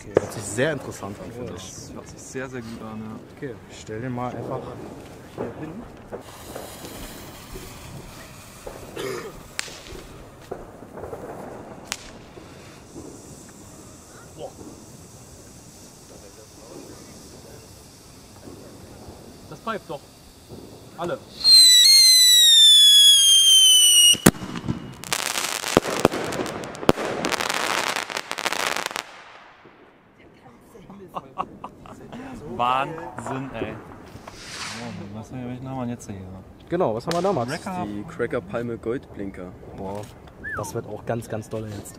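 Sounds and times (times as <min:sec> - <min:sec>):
firework fuse hissing: 0:00.0 - 0:30.0, 0:31.0 - 0:35.5, 0:37.0 - 0:38.1
firecracker cracks: 0:04.4 - 0:30.2, 0:33.1 - 0:35.2, 0:37.1 - 0:37.6.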